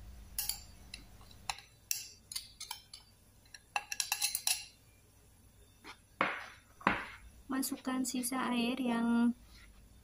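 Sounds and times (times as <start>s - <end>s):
metal spoon clinking and scraping: 0.4s - 4.8s.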